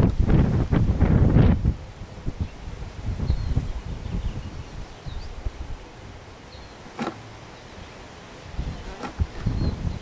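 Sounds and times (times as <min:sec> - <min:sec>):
wind buffeting microphone: 0:00.0 - 0:06.1, 0:08.4 - 0:10.0
bees buzzing: 0:01.9 - 0:10.0.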